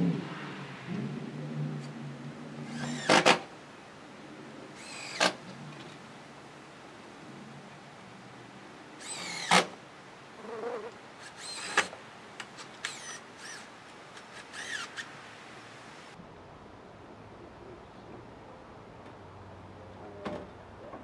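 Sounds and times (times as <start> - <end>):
cordless drill driving screws: 2.7 - 3.4, 4.8 - 5.4, 9.0 - 9.8, 11.2 - 12.0, 12.6 - 15.1.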